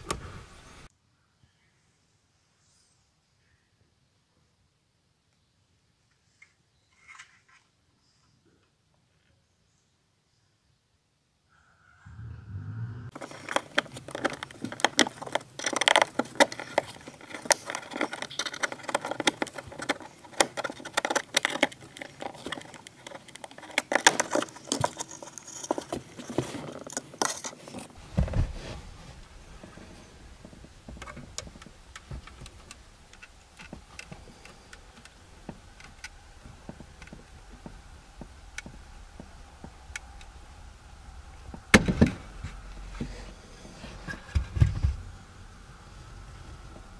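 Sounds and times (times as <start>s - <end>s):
low steady hum: 27.7s - 46.9s.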